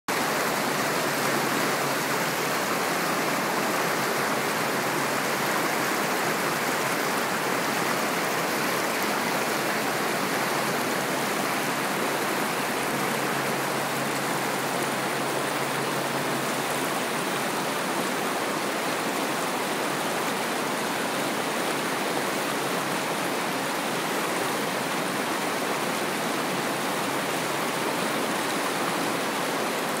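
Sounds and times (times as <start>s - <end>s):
whitewater rapids roaring: 0.1s - 30.0s.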